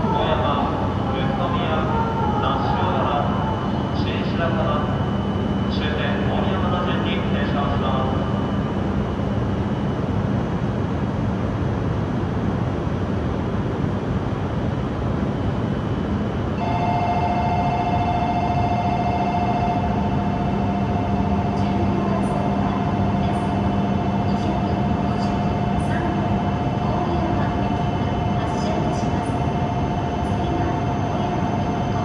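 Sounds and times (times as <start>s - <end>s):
train equipment humming and whirring: 0.0s - 32.0s
steady electronic tone: 16.6s - 26.6s.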